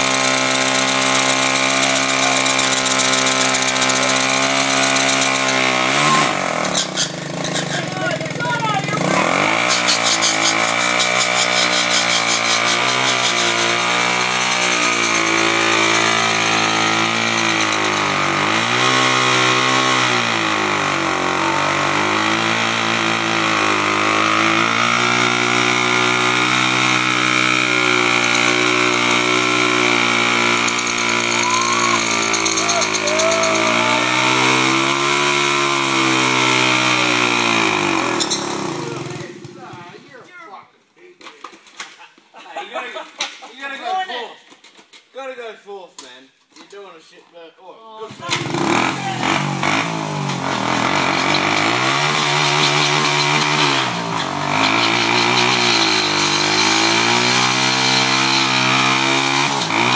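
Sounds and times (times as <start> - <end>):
motorcycle engine revving: 0.0 - 39.9, 48.1 - 59.9.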